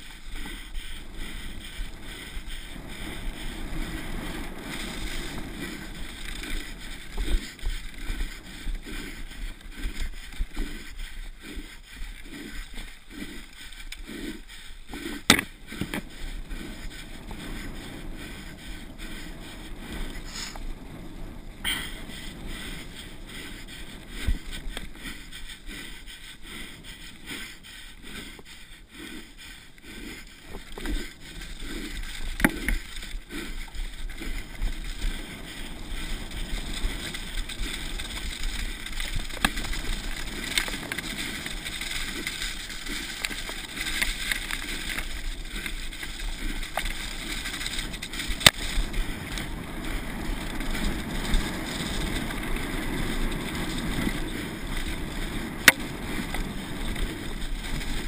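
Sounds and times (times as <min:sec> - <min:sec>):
bike tyres on dirt: 0:00.0 - 0:58.0
bike knocking over bumps: 0:15.2 - 0:16.1.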